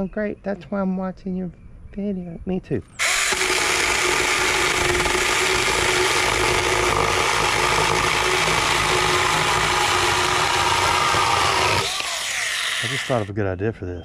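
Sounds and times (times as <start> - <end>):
electric chainsaw cutting wood: 3.0 - 13.3.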